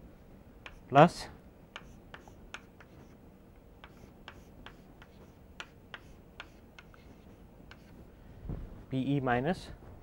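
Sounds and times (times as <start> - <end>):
chalk tapping and scraping on blackboard: 0.6 - 0.8, 1.8 - 3.2, 3.8 - 8.0.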